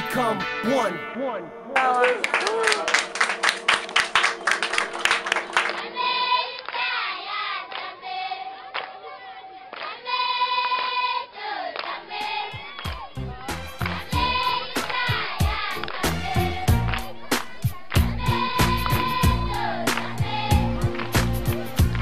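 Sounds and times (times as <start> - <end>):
rhythmic clapping: 1.7 - 22.0
children singing in chorus: 5.3 - 21.0
music with held notes: 12.5 - 22.0.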